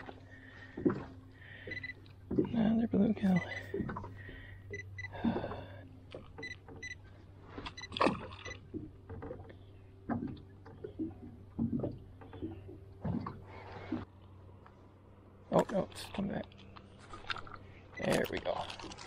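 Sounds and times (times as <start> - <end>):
knocks and rustles in a boat: 0.0 - 14.9
low steady hum: 0.0 - 19.0.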